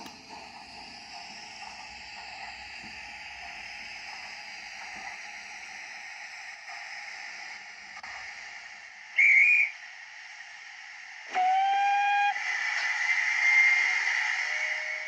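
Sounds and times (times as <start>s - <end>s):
steady hiss of steam: 0.0s - 15.0s
model locomotive steam whistle: 9.2s - 9.8s, 11.3s - 15.0s.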